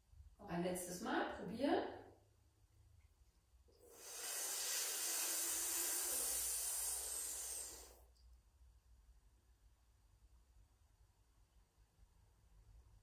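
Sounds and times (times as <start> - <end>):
breath drawn in hissing: 3.8 - 8.1.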